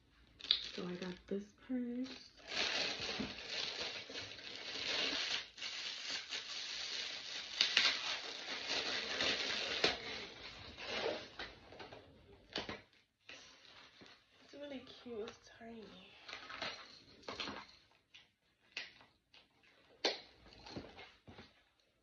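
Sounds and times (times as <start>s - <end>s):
plastic packaging crinkling: 0.4s - 11.5s.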